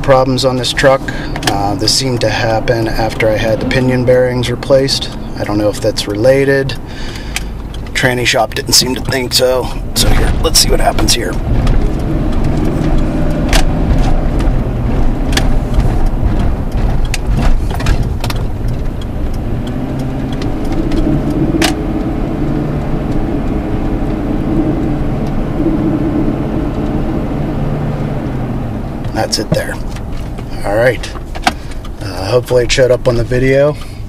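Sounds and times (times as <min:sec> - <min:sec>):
truck engine pulling under load: 0:00.0 - 0:34.0
sharp clicks: 0:04.5 - 0:25.7
rattle: 0:07.1 - 0:23.4.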